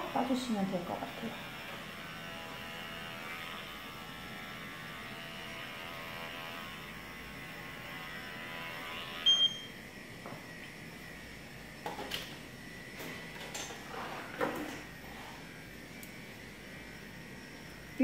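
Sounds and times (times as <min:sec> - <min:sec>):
electric clipper humming: 0:00.0 - 0:18.0
short high beep: 0:09.3 - 0:09.7.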